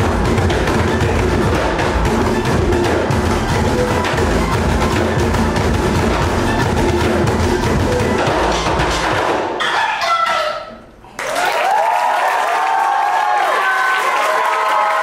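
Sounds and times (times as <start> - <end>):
music track with deep bass: 0.0 - 9.3
drumming on barrel drums: 0.0 - 9.6
audience cheering and applauding: 11.2 - 15.0.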